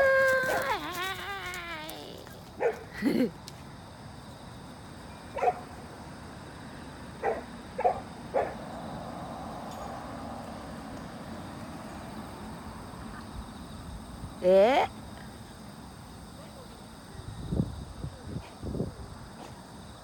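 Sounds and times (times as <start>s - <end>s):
dog barking: 2.6s - 2.8s, 5.4s - 5.7s, 7.2s - 8.6s.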